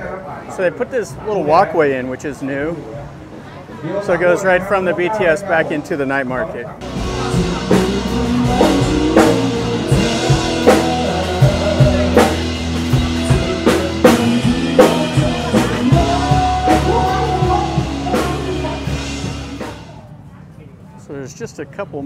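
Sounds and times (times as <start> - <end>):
person singing: 6.8 - 19.9
drum kit beat: 6.8 - 20.0
live band playing: 6.8 - 20.0.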